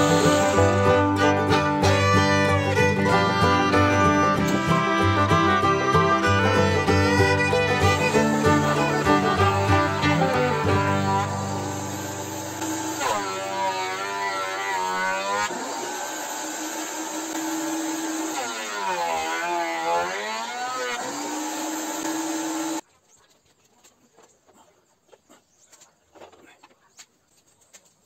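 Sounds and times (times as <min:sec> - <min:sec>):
bowed string melody: 0:00.0 - 0:15.4.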